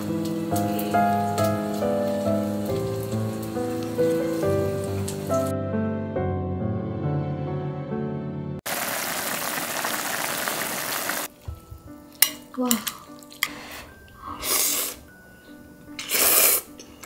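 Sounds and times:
pot boiling hard: 0.0s - 5.5s, 8.7s - 11.3s
music: 0.0s - 8.6s, 11.2s - 17.0s.

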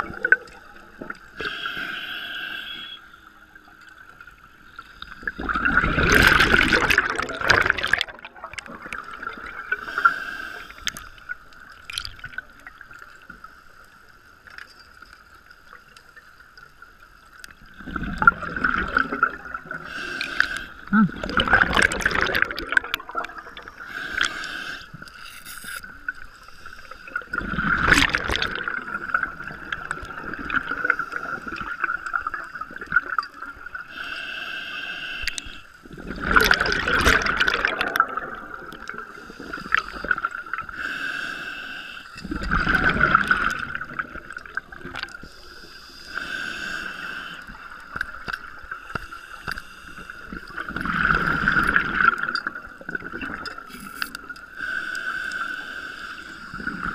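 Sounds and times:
exhaled air bubbling underwater: 0.0s - 14.0s, 15.7s - 25.2s, 25.8s - 56.9s
hissing inhales: 1.4s - 3.1s, 9.8s - 11.0s, 23.8s - 25.8s, 33.9s - 35.8s, 40.7s - 42.2s, 45.2s - 47.9s, 54.5s - 56.6s.

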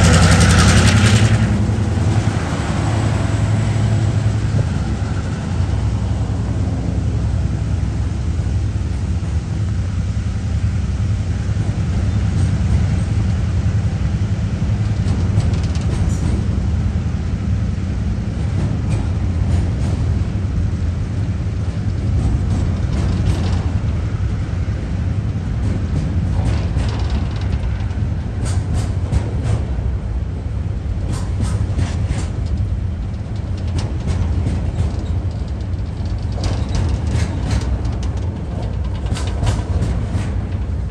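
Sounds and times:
wheels clicking and knocking: 0.0s - 1.6s, 14.8s - 16.7s, 21.6s - 24.4s, 25.6s - 29.8s, 31.0s - 40.9s
freight train rumbling past: 0.0s - 40.9s.

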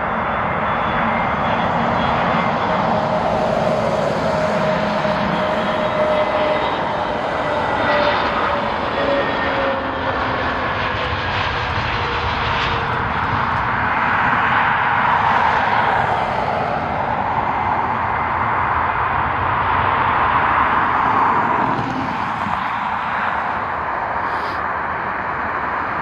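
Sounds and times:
jet engines passing: 0.0s - 26.0s.

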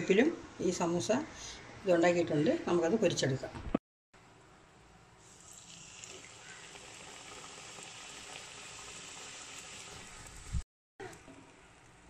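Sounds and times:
oil sizzling and bubbling: 5.2s - 12.0s.

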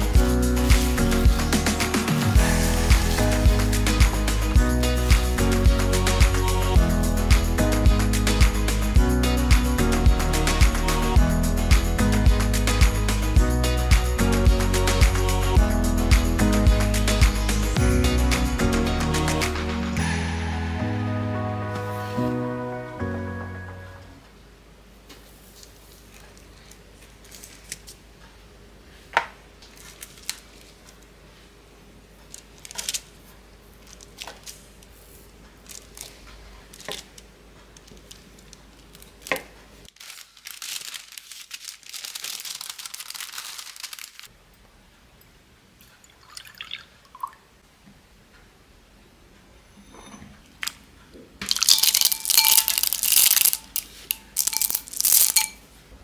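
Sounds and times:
rustling: 51.4s - 55.6s.

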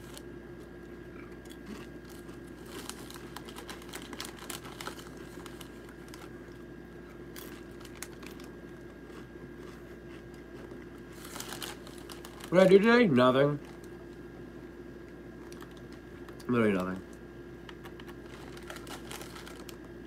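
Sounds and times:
chewing crunchy chips: 0.0s - 12.8s, 13.6s - 14.3s, 15.0s - 20.0s
steady hum: 0.0s - 20.0s
chip bag crinkling: 1.5s - 14.0s, 15.4s - 17.1s, 17.7s - 20.0s
small clicks and crackles: 15.4s - 19.9s.

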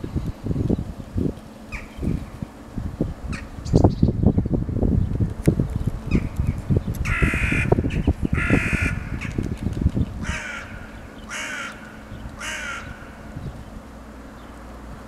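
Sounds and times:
low rumble with thumps: 0.0s - 15.0s
crow cawing: 7.1s - 9.4s, 10.2s - 13.3s.

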